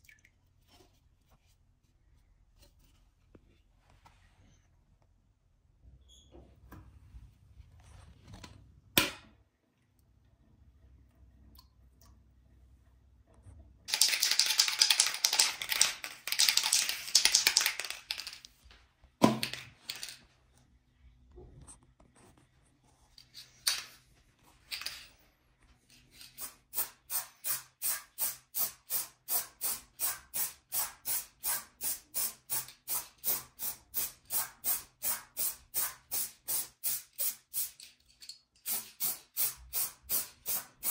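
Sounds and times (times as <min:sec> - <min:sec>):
spray paint can hissing: 0:13.9 - 0:17.9, 0:26.4 - 0:37.9, 0:38.6 - 0:40.9.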